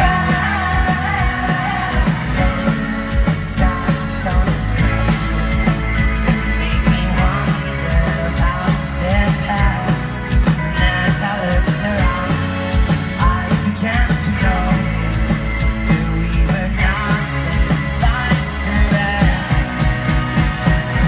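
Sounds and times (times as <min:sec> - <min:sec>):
guitar: 0:00.0 - 0:21.0
person singing: 0:00.0 - 0:21.0
steady drum beat: 0:00.0 - 0:21.0.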